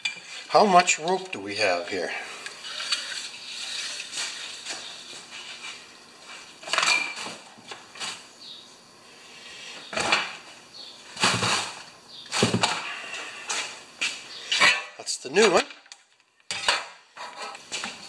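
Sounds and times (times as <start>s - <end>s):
parts rustling and clattering: 2.5s - 8.3s, 9.8s - 18.0s.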